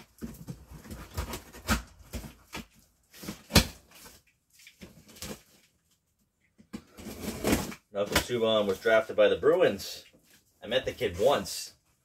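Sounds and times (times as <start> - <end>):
cardboard flaps and tape rustling: 0.0 - 5.8, 6.8 - 9.0.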